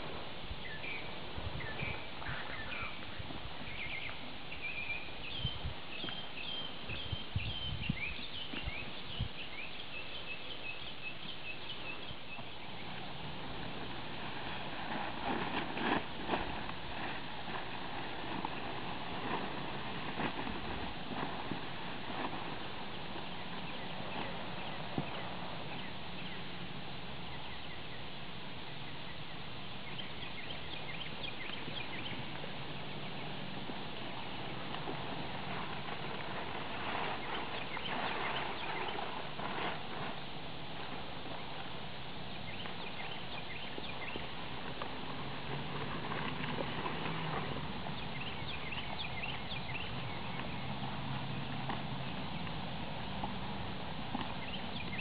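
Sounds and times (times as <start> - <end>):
small birds chirping: 0.0 - 55.0
hoofbeats on grass: 11.6 - 26.6, 42.4 - 55.0
steady rustling: 12.0 - 26.9, 31.0 - 55.0.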